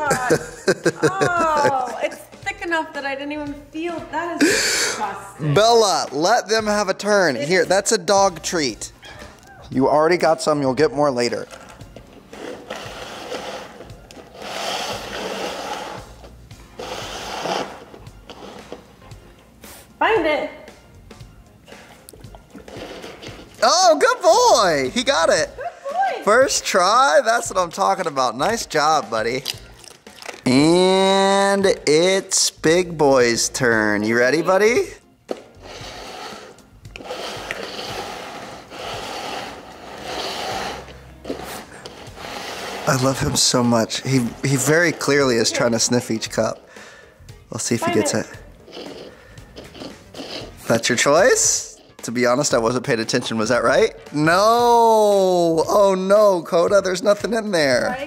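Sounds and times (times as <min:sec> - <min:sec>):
plastic cups sliding on wooden table: 0:11.3 - 0:19.1, 0:21.8 - 0:23.6, 0:35.3 - 0:47.1, 0:48.1 - 0:52.5.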